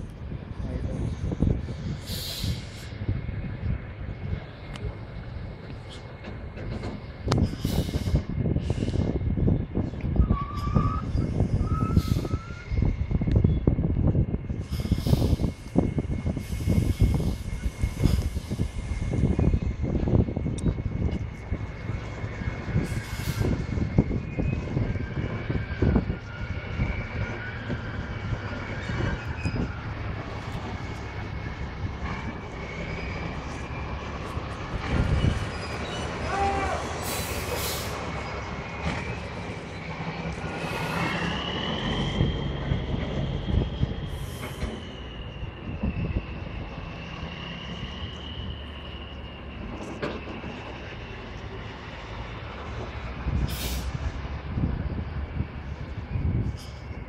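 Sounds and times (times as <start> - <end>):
truck engine rumbling: 0.0 - 57.0
high squeal: 9.5 - 13.8, 14.5 - 54.1.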